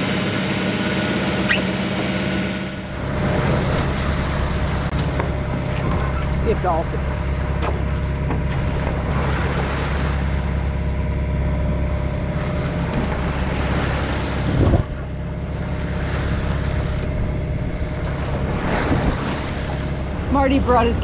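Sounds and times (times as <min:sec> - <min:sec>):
bow wave splashing along hull: 0:00.0 - 0:21.0
diesel engine humming: 0:00.0 - 0:21.0
wind on microphone: 0:12.8 - 0:15.1, 0:15.9 - 0:21.0.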